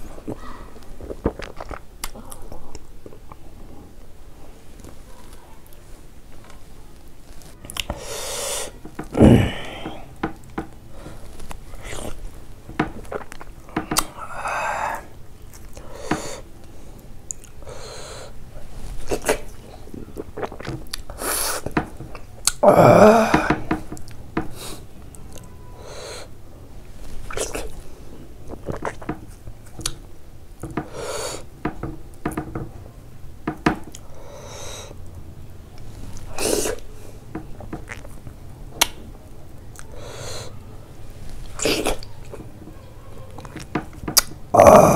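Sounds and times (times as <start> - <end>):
person chewing wetly: 0.0 - 3.5, 7.4 - 8.0, 9.0 - 16.4, 17.3 - 17.7, 19.0 - 22.6, 27.2 - 27.8, 28.4 - 30.0, 37.5 - 38.2, 39.7 - 40.0, 43.4 - 44.3
lip smacks: 0.2 - 3.4, 7.4 - 8.0, 12.8 - 16.4, 18.9 - 22.6, 27.2 - 27.8, 28.4 - 30.0, 37.6 - 39.1, 39.7 - 40.6, 43.4 - 44.4
breathy sound: 7.9 - 10.3, 13.8 - 15.1, 22.6 - 23.8
mouth clicks: 12.8 - 16.4, 19.1 - 26.3, 37.6 - 39.0, 43.3 - 44.9.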